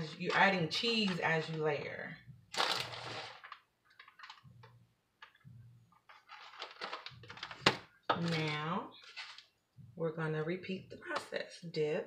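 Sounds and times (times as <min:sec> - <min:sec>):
plastic bag crinkling: 0:02.6 - 0:04.5, 0:06.1 - 0:07.7.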